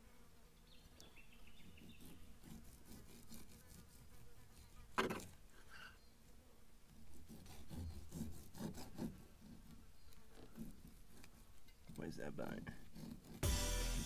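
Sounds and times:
knife sawing through meat: 0:01.8 - 0:04.9, 0:07.1 - 0:09.7, 0:12.8 - 0:13.8.

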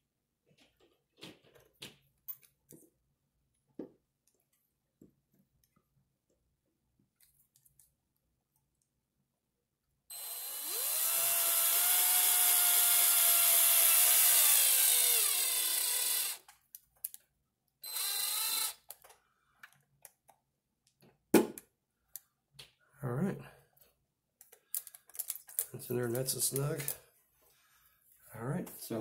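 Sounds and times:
power drill driving a screw: 0:10.1 - 0:16.5, 0:17.8 - 0:19.0.

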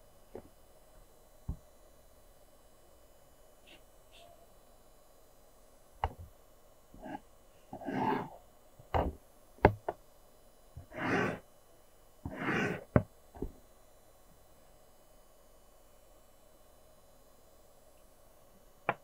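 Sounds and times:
pencil scratching on paper: 0:07.0 - 0:07.2, 0:07.8 - 0:08.4, 0:10.8 - 0:11.4, 0:12.3 - 0:12.9.

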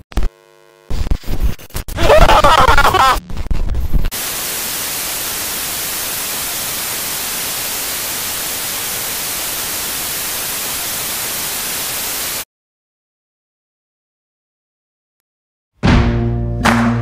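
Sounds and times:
tv static hiss: 0:00.0 - 0:01.2, 0:02.0 - 0:12.4.

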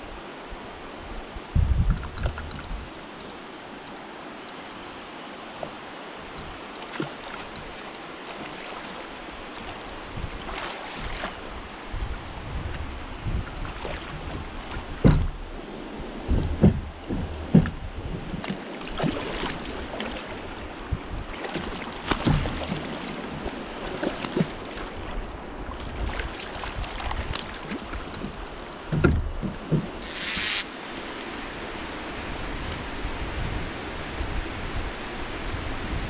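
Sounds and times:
low thumps and knocks: 0:01.6 - 0:02.9, 0:12.0 - 0:15.6, 0:16.2 - 0:19.2, 0:21.6 - 0:22.9, 0:28.0 - 0:30.5
water rushing through spillway: 0:02.6 - 0:29.0, 0:29.9 - 0:36.0.

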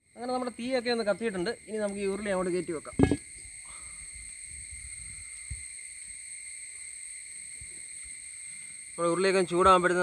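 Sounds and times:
soft low thump: 0:03.0 - 0:03.2.

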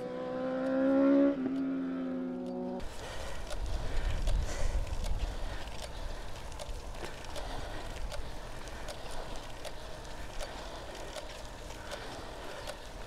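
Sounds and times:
light bicycle clicks: 0:00.5 - 0:13.0
wind rumbling on microphone: 0:02.8 - 0:13.0.

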